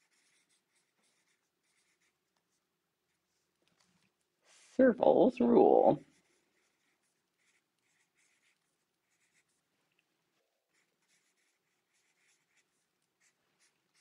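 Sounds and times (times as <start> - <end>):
pen scratching on paper: 0.0 - 2.4, 5.8 - 9.7, 10.7 - 14.0.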